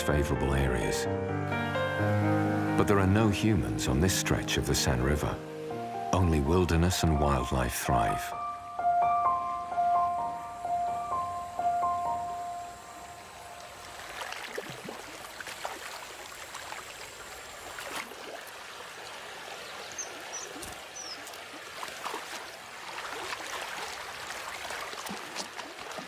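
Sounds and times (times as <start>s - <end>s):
river water trickling over stones: 12.6s - 26.0s.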